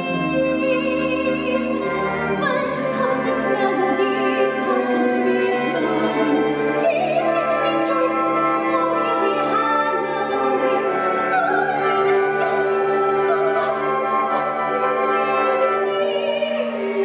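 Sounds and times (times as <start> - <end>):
sustained instrumental accompaniment: 0.0 - 17.0
woman singing soprano: 0.0 - 17.0.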